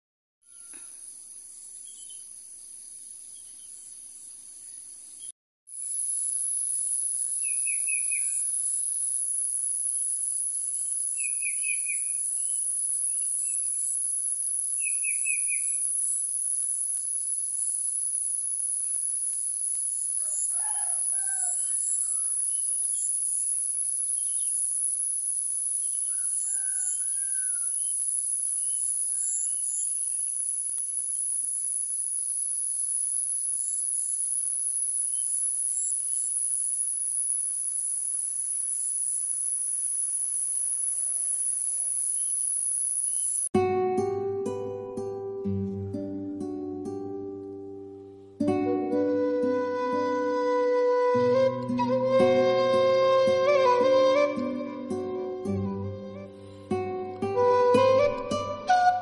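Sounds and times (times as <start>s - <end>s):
crickets chirring: 0.5s - 43.5s
rooster crowing: 7.2s - 8.9s, 20.2s - 23.0s, 26.0s - 27.9s, 28.8s - 29.6s.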